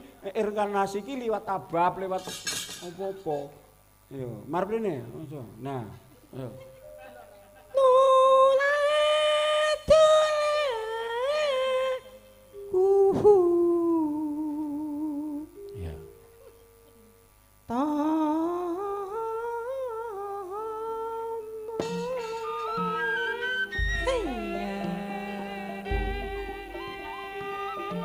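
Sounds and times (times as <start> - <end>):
woman singing into a microphone: 7.7 - 15.6, 17.7 - 22.4, 23.9 - 28.0.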